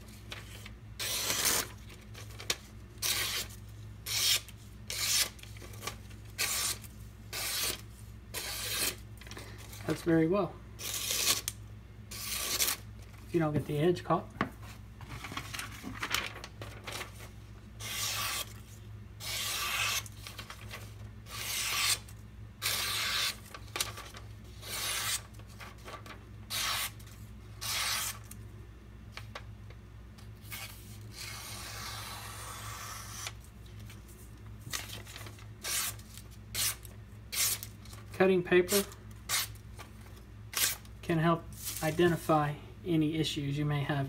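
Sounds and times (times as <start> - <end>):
knife slicing through paper: 17.8 - 27.0, 27.6 - 28.3.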